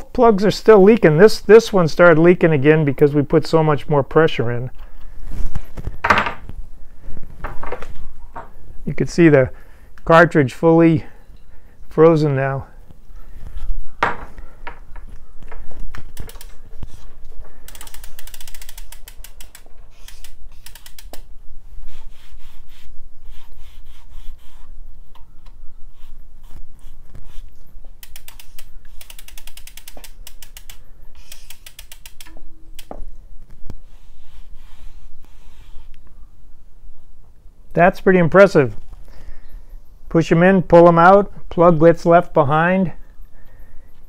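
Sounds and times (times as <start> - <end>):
bicycle freehub clicking: 15.4 - 21.3, 23.3 - 33.0.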